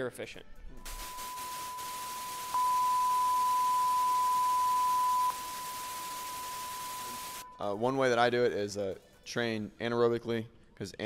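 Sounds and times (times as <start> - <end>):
tv static hiss: 0.8 - 7.4
test-pattern beep tone: 0.8 - 7.6.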